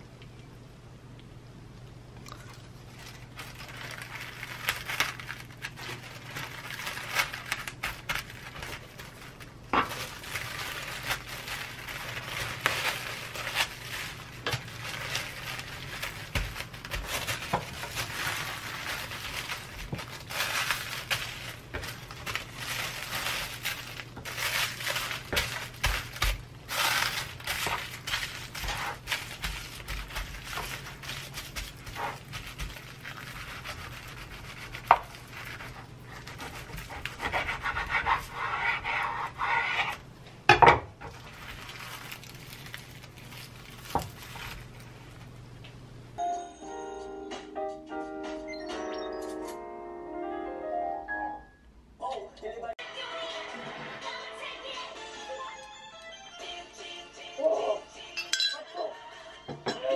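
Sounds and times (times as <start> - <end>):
baking paper crinkling: 2.4 - 40.1, 41.0 - 45.5.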